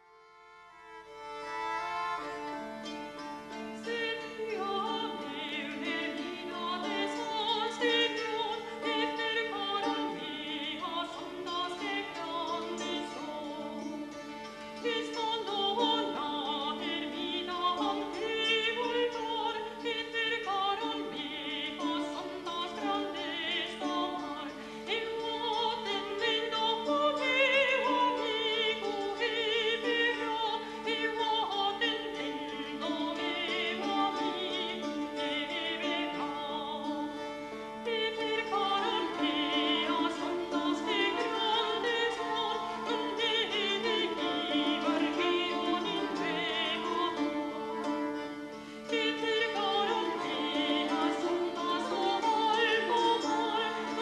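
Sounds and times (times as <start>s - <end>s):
person singing with vibrato: 3.7s - 54.0s.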